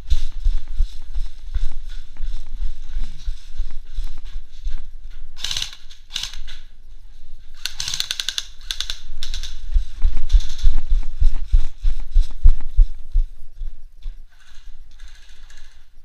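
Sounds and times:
running footsteps on concrete: 0:00.0 - 0:05.6, 0:09.4 - 0:14.6
airsoft rifle bursts: 0:05.4 - 0:06.5, 0:07.6 - 0:09.5.

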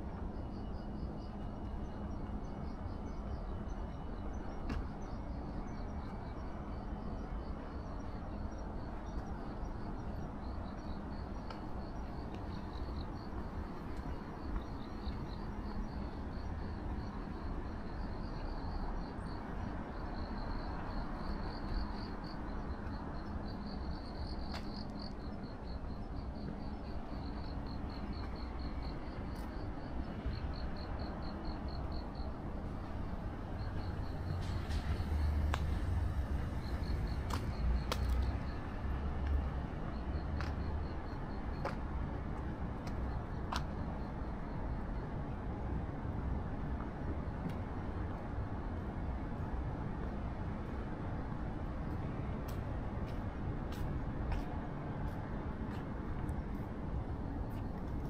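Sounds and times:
crickets chirping: 0:00.0 - 0:46.3.

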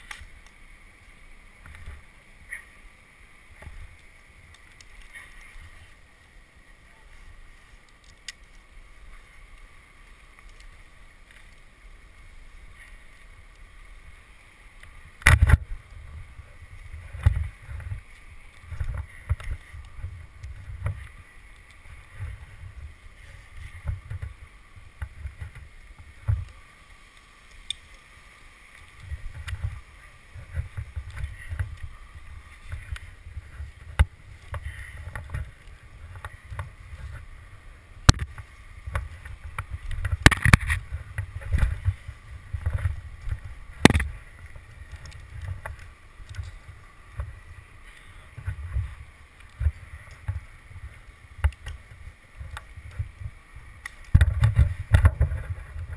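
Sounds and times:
rope and gear rubbing on bark: 0:00.0 - 0:55.9
low bumps on tree trunk: 0:14.8 - 0:26.6, 0:28.8 - 0:47.6, 0:48.3 - 0:55.9.

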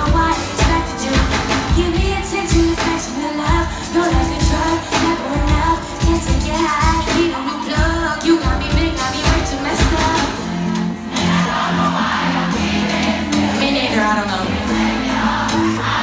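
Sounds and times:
woman singing into microphone: 0:00.0 - 0:11.0, 0:13.3 - 0:14.8.

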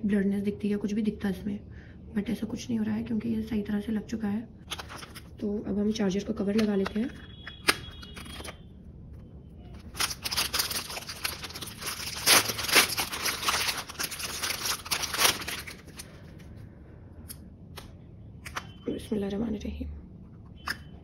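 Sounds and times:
plastic bag crinkling: 0:04.6 - 0:05.4, 0:09.7 - 0:16.5.

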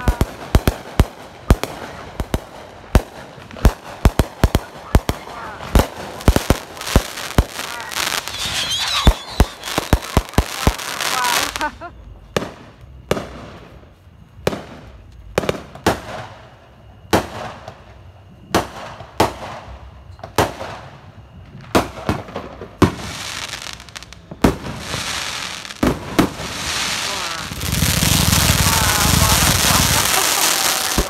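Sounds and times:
firework crackling: 0:00.0 - 0:11.8, 0:22.7 - 0:31.0
fireworks bangs: 0:00.0 - 0:13.7, 0:21.5 - 0:31.0.

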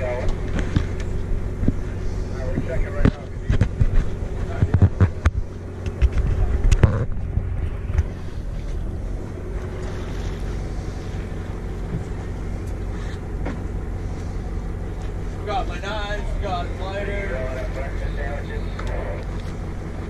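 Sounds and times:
boat low rumble: 0:00.0 - 0:20.0.

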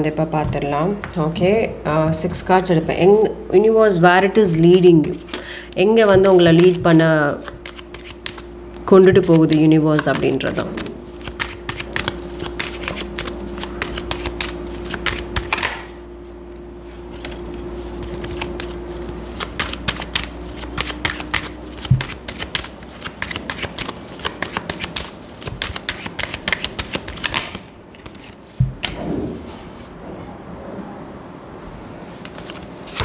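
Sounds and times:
cards being shuffled: 0:04.5 - 0:15.9, 0:17.1 - 0:29.0, 0:32.2 - 0:33.0.

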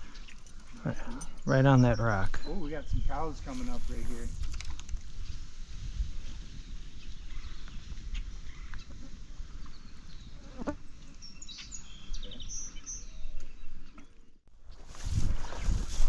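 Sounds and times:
birds chirping: 0:00.0 - 0:04.3, 0:06.2 - 0:14.4.

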